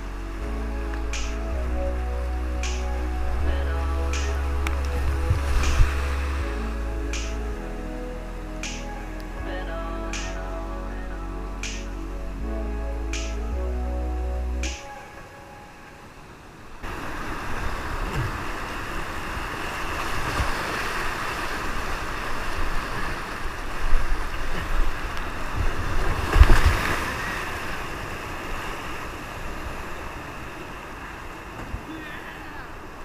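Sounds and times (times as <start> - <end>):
wind buffeting microphone: 0.0 - 7.7
whitewater rushing and splashing: 0.0 - 10.7, 14.6 - 33.0.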